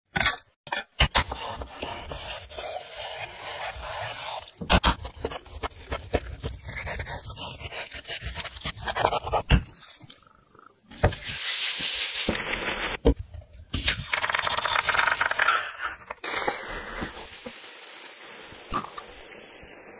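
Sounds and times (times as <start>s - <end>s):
knife slicing onion: 0.2s - 10.0s.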